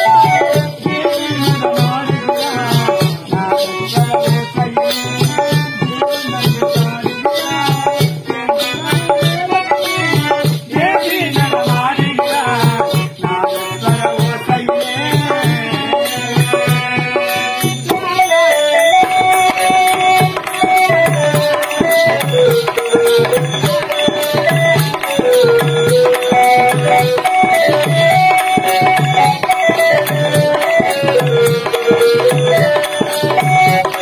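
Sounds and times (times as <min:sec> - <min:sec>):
hand drum steady rhythm: 0:00.0 - 0:34.0
harmonium playing slow melody: 0:15.8 - 0:34.0.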